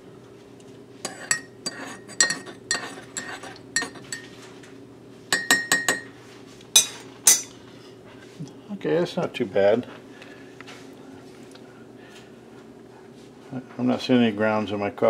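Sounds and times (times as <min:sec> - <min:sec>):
metal spoon clinking in ceramic mug: 0:01.1 - 0:04.3, 0:05.3 - 0:06.1, 0:06.8 - 0:07.5.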